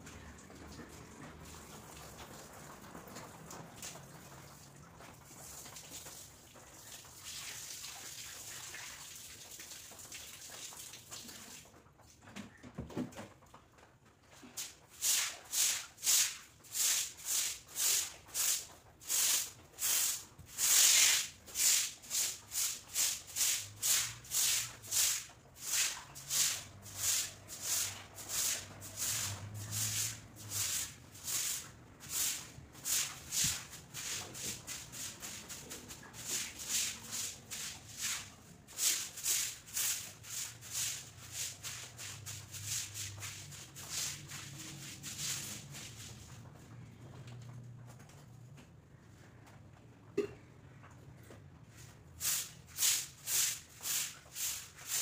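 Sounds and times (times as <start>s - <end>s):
hose spraying water: 0.1s - 11.7s, 14.5s - 46.5s, 52.1s - 55.0s
broom scrubbing wet floor: 5.4s - 11.6s, 14.4s - 46.5s, 51.7s - 55.0s.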